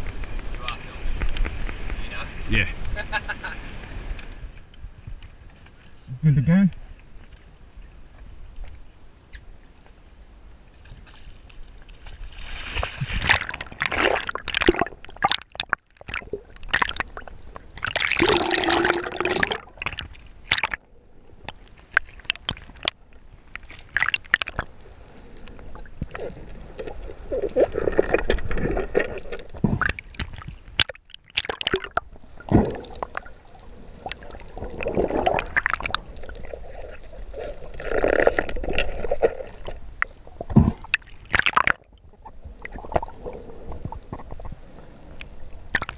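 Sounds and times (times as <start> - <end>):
underwater water gurgling: 11.7 - 45.9
bubbles rushing: 12.5 - 20.8, 23.9 - 24.7, 25.7 - 39.8, 40.4 - 41.9.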